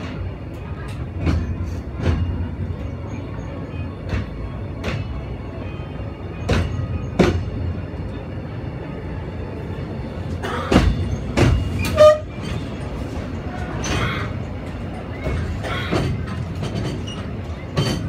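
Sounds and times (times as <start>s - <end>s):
train carriage rumbling: 0.0s - 18.0s
wheels clacking over rail joints: 10.4s - 18.0s.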